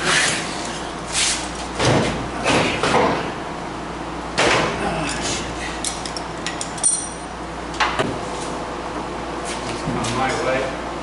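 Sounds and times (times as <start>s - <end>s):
light metallic clinks: 5.9s - 7.3s.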